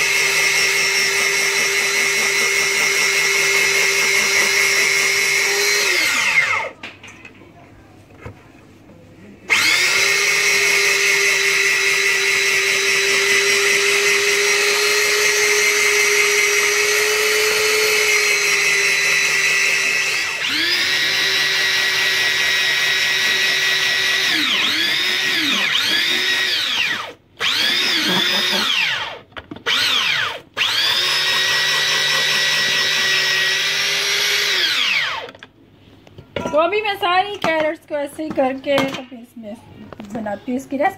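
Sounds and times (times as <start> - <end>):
electric grater motor whining: 0.0 - 6.7, 9.5 - 35.4.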